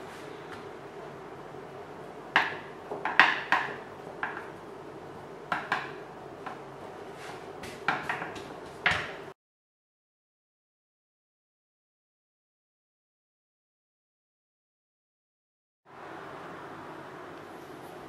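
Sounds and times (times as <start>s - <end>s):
faint steady hum: 0.0s - 9.3s, 15.9s - 18.0s
rolling pin knocking on worktop: 2.3s - 4.5s, 5.5s - 6.6s, 7.6s - 9.3s.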